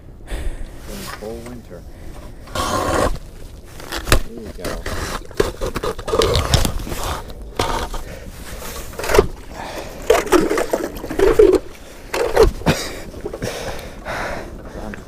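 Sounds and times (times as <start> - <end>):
ice auger scraping and grinding: 2.2 - 13.4.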